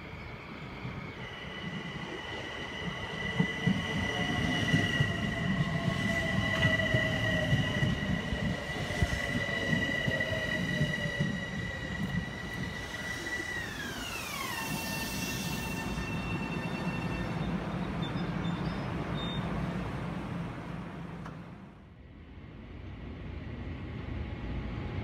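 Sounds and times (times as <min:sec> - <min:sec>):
train wheels rumbling and clattering: 0:00.9 - 0:19.2.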